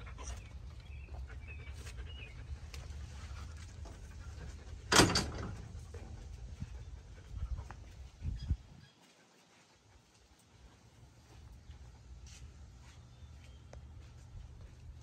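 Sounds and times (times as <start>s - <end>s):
dog panting and snuffling: 0.0s - 4.9s
steady low rumble: 5.5s - 8.8s.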